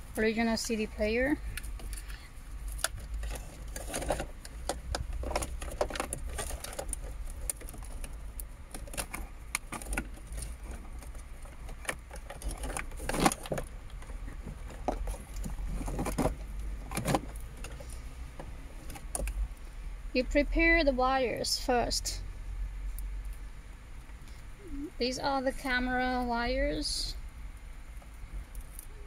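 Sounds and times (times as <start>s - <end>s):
steady low hum: 0.0s - 29.0s
plastic connectors clicking and rattling: 1.5s - 18.0s.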